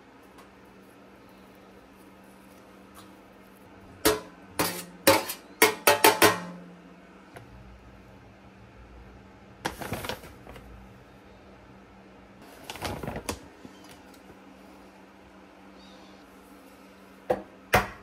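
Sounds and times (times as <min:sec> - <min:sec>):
low steady hum: 0:00.0 - 0:18.0
paper bag rustling: 0:09.7 - 0:10.8, 0:12.4 - 0:13.7.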